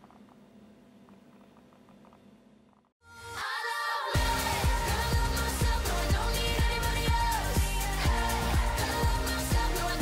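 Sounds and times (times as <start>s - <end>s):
pop music with kick drum beat: 4.1s - 10.0s.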